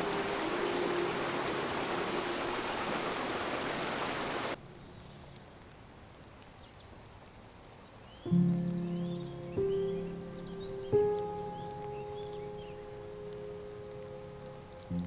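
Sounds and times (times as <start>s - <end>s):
stream rushing over rocks: 0.0s - 4.6s
high bird chirps: 8.1s - 15.0s.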